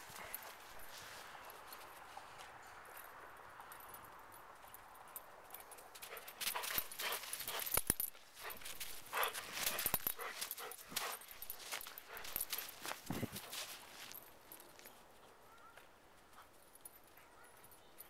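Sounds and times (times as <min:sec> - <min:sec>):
footsteps crunching in snow: 0:00.0 - 0:02.8, 0:06.5 - 0:15.0.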